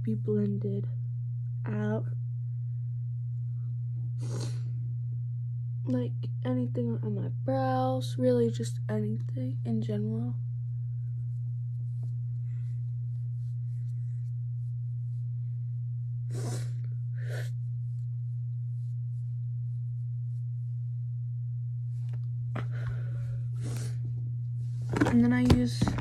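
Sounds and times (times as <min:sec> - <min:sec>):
low electrical hum: 0:00.0 - 0:26.0
person sniffing: 0:04.2 - 0:04.7, 0:16.3 - 0:17.6, 0:23.6 - 0:24.0.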